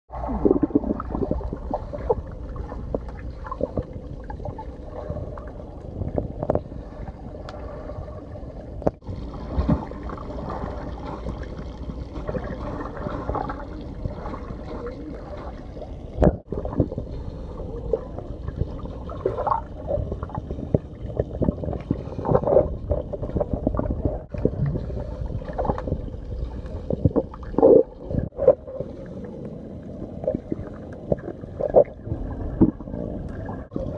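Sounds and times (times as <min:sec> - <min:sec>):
water churning and bubbling underwater: 0:00.1 - 0:33.9.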